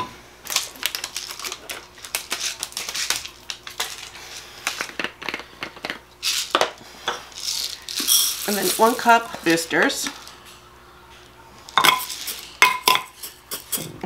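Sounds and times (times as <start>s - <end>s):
bottle of beads rattling: 5.8s - 6.6s, 7.3s - 9.6s, 11.9s - 12.4s
tiny beads pouring into glass jar: 7.4s - 9.5s.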